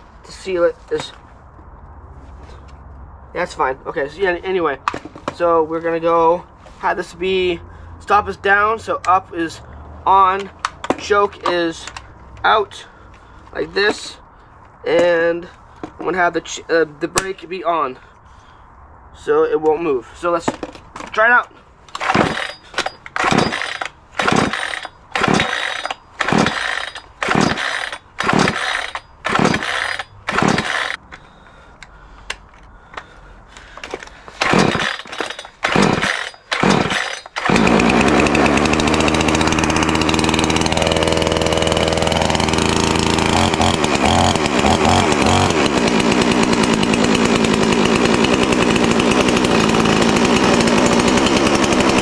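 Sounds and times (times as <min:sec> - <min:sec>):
chainsaw starter cord yanks: 0:10.1 - 0:12.5, 0:20.5 - 0:31.0, 0:32.9 - 0:52.0
chainsaw engine running: 0:22.0 - 0:31.0, 0:33.8 - 0:52.0.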